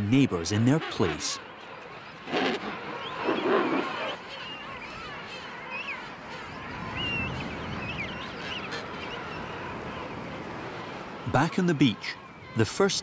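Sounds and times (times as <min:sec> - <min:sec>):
penguin colony calling: 0:00.1 - 0:07.4.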